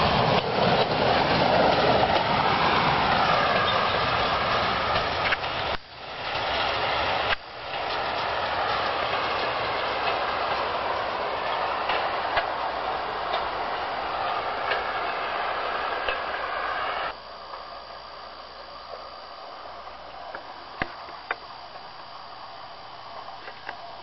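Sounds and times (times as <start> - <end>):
hiss: 0.0 - 17.2
rail trolley engine and wheels: 0.0 - 24.0.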